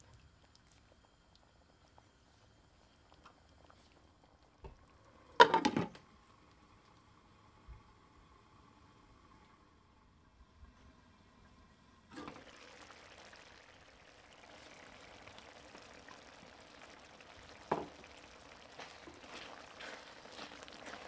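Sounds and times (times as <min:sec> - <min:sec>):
curry simmering and bubbling: 0:00.0 - 0:07.1, 0:10.5 - 0:21.0
stirring in a pan: 0:14.5 - 0:21.0.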